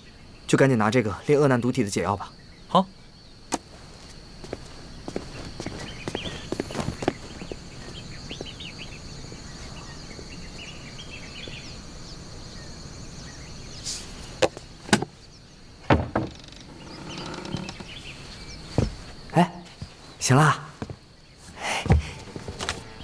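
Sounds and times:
high insect drone: 0:00.0 - 0:23.0
sharp knocks: 0:15.8 - 0:17.7.

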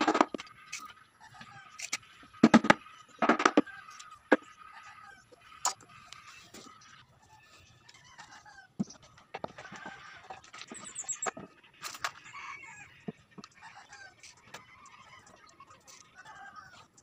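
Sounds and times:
plywood panels knocking: 0:00.0 - 0:00.4, 0:02.4 - 0:03.6
chickens clucking: 0:00.0 - 0:17.0.

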